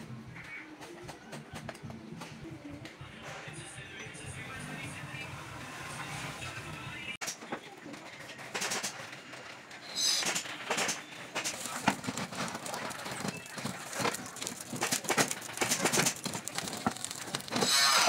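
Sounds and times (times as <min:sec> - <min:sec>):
roasting pig crackling: 0:11.0 - 0:18.0.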